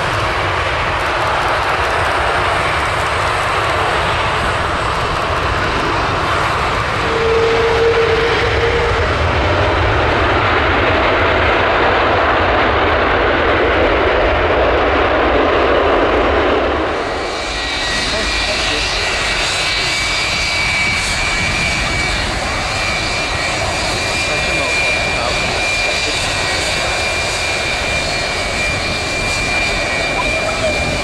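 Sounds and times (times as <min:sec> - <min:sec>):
jet engines running: 0:00.0 - 0:31.0.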